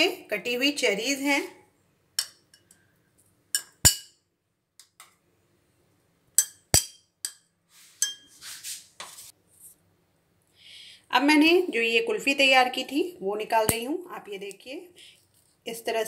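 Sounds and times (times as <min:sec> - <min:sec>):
spoon and glasses clinking: 0:03.6 - 0:04.2, 0:06.4 - 0:07.4, 0:08.0 - 0:08.3.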